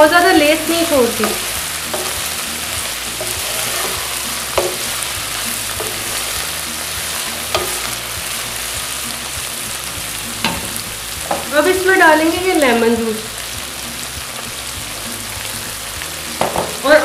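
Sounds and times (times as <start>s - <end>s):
okra sizzling in oil: 0.0s - 17.0s
wooden spatula knocking on pan: 1.2s - 2.3s, 3.2s - 5.2s, 5.8s - 6.4s, 7.0s - 8.0s, 10.4s - 11.6s, 16.4s - 16.8s.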